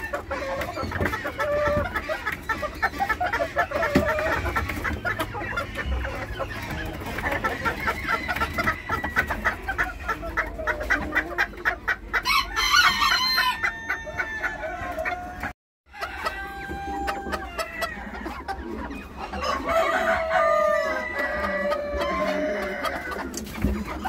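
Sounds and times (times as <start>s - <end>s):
chickens clucking: 0.0s - 24.0s
rooster crowing: 12.3s - 18.0s.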